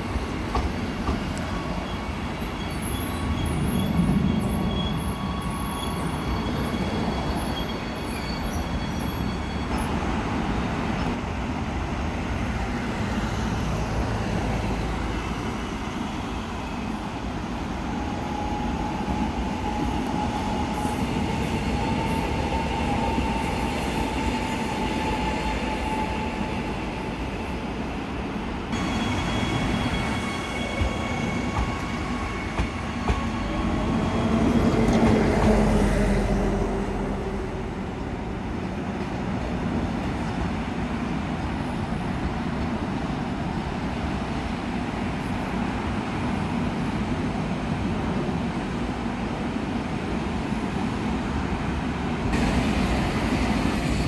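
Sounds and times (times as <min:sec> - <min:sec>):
electric trains rumbling: 0:00.0 - 0:54.0.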